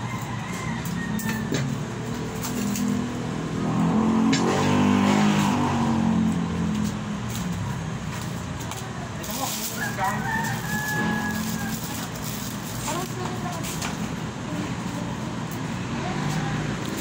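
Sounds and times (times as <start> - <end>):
vehicle engine revving past: 2.8 - 6.7
plastic wrapping rustling: 8.2 - 14.0.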